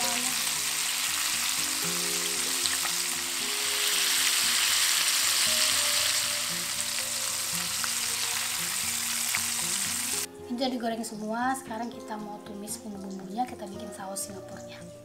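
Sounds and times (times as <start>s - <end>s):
shrimp sizzling in hot oil: 0.0s - 10.3s.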